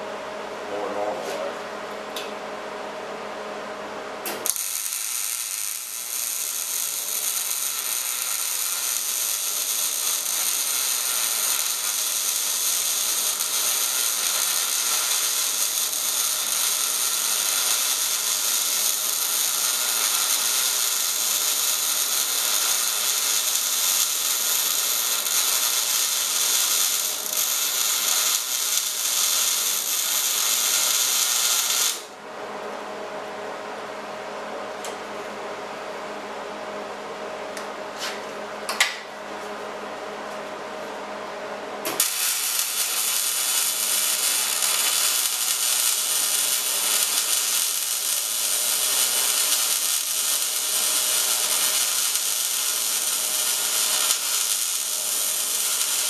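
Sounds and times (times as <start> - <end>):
welding arc crackle: 4.3 - 32.2, 41.9 - 56.0.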